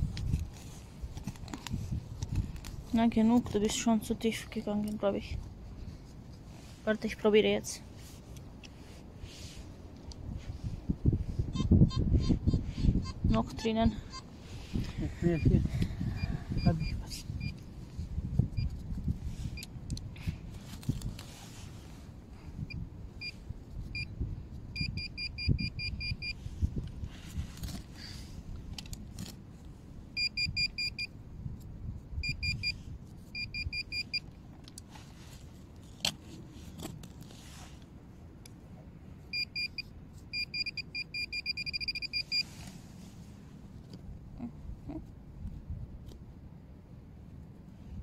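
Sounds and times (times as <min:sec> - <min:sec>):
mulch rustling and scraping: 0:00.0 - 0:02.9, 0:20.2 - 0:22.2, 0:34.8 - 0:38.0
metal detector pinpointer beeping: 0:16.6 - 0:17.6, 0:24.8 - 0:26.4, 0:30.2 - 0:31.1, 0:32.2 - 0:34.3, 0:39.3 - 0:42.5.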